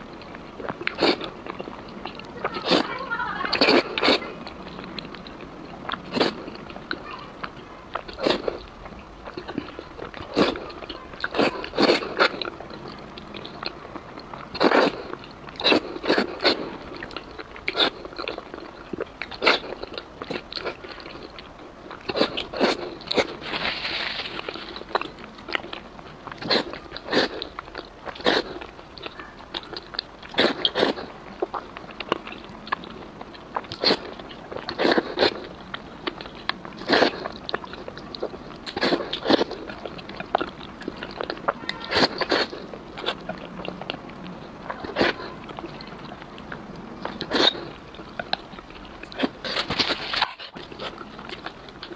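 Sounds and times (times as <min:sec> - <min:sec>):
wet chewing mouth clicks: 0:00.1 - 0:51.9
slurping noodles: 0:00.6 - 0:02.9, 0:03.5 - 0:04.3, 0:06.0 - 0:06.7, 0:08.1 - 0:08.7, 0:09.3 - 0:12.5, 0:14.5 - 0:18.3, 0:22.1 - 0:25.1, 0:26.4 - 0:27.5, 0:28.1 - 0:28.7, 0:30.3 - 0:31.6, 0:33.7 - 0:35.5, 0:36.8 - 0:37.4, 0:38.2 - 0:41.3, 0:41.9 - 0:43.2, 0:47.2 - 0:47.8, 0:49.2 - 0:51.4.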